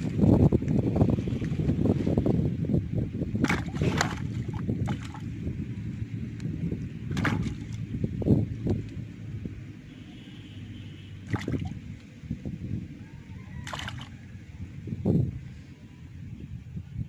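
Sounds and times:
fish slapping on grass: 0:03.4 - 0:05.2, 0:07.1 - 0:07.8, 0:11.3 - 0:11.8, 0:13.6 - 0:14.1.

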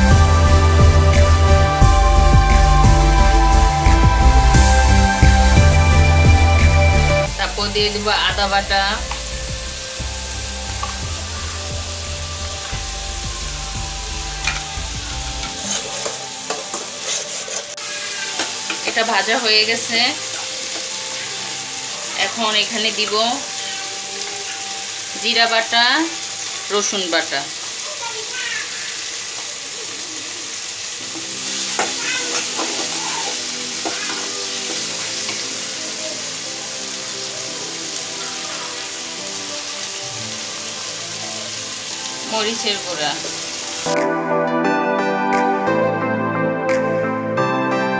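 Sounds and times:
onions sizzling in hot oil: 0:00.0 - 0:44.0
spatula scraping pot: 0:15.4 - 0:18.9
spatula knocking on pan: 0:31.2 - 0:35.4.

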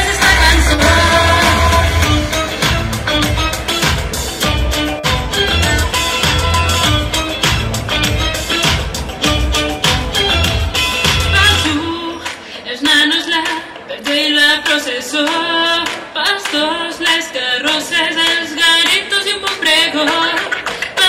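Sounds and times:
woman singing: 0:00.0 - 0:02.4, 0:11.3 - 0:21.0
pop song: 0:00.0 - 0:21.0
handclaps: 0:15.2 - 0:16.6.

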